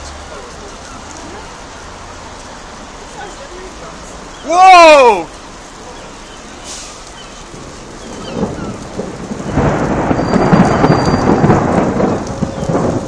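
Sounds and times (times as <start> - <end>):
thunder rumbling: 5.3 - 13.0.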